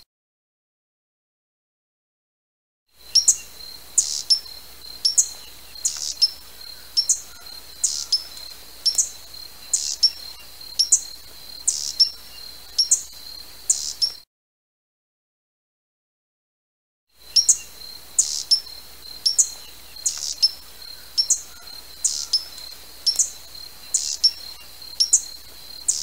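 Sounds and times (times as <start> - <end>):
hummingbird chip calls: 3.0 - 14.2, 17.2 - 26.0.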